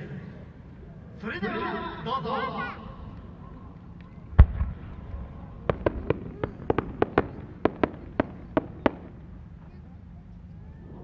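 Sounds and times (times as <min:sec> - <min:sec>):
firework launch boom: 0:04.4 - 0:09.1
firework cracks: 0:04.4 - 0:09.2.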